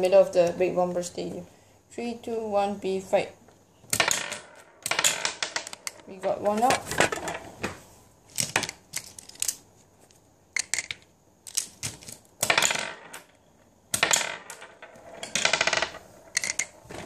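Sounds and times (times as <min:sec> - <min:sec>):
plastic marbles clattering: 0:08.3 - 0:09.6, 0:10.6 - 0:13.3, 0:14.0 - 0:17.0.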